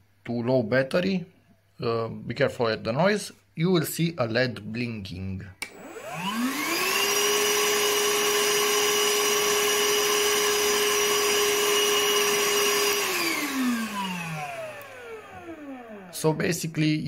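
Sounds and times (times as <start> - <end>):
vacuum motor running: 5.6 - 16.4.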